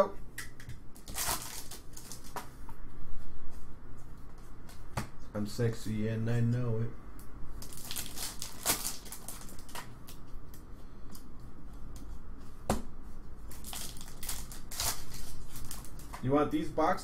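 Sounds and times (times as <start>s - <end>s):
foil wrappers crinkling: 1.0s - 2.4s, 7.6s - 10.2s, 13.5s - 16.2s.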